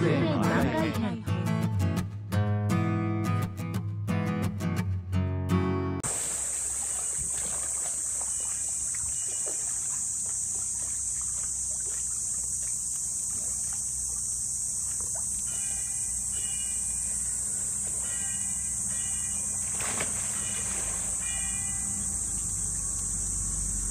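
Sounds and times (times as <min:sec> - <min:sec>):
water sloshing and splashing: 0:06.0 - 0:16.5, 0:19.5 - 0:22.9
insects droning: 0:06.0 - 0:23.9.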